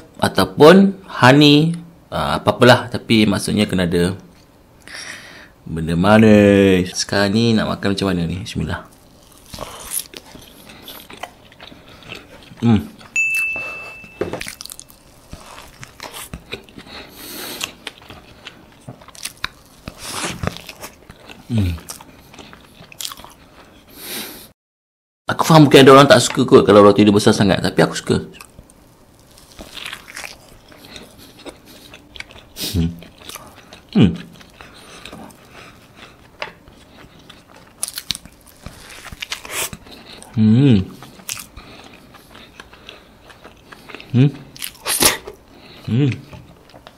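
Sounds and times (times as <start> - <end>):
wet chewing: 8.9 - 13.2, 14.4 - 24.0, 28.3 - 46.9
short high beep: 13.2 - 14.6
biting into toast: 28.4 - 46.9
crunchy bite into toast: 37.1 - 40.3.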